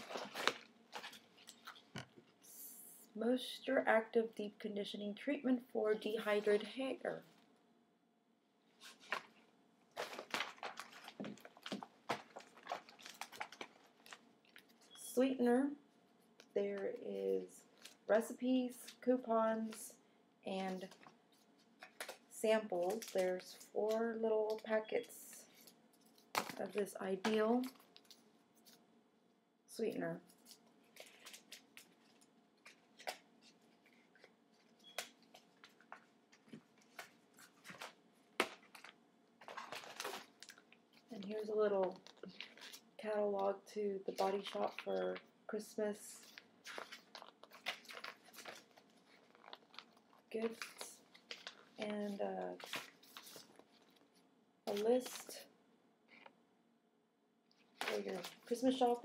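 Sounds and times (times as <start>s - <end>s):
plastic bag crinkling: 0.0s - 2.0s, 8.8s - 15.0s, 30.3s - 43.1s, 44.1s - 45.2s, 46.2s - 55.4s, 57.6s - 59.0s
paper rustling and tapping: 10.0s - 14.8s, 25.6s - 28.8s, 30.4s - 41.2s, 46.3s - 51.8s.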